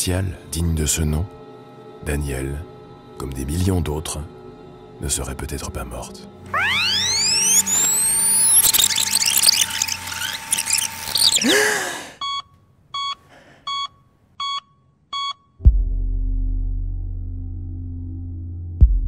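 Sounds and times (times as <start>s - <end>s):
electronic beeps: 6.5s - 11.4s
glitchy electronic sweep: 6.5s - 11.4s.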